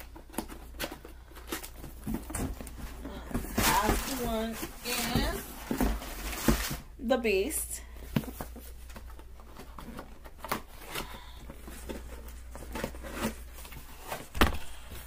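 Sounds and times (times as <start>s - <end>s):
cardboard box rustling and knocking: 0.2s - 6.8s.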